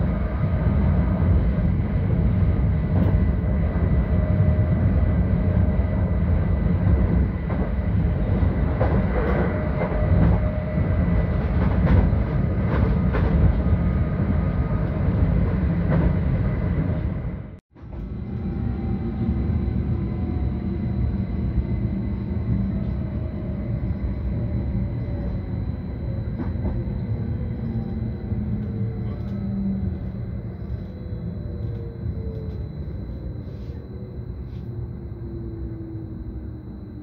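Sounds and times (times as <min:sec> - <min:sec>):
train running rumble: 0:00.0 - 0:37.0.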